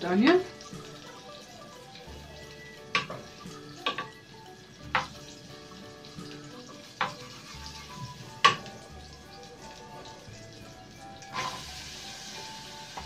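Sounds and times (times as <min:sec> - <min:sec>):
butter sizzling in frying pan: 0:00.0 - 0:13.0
wooden spatula knocking on pan: 0:02.9 - 0:04.1, 0:04.9 - 0:05.2, 0:08.4 - 0:08.8.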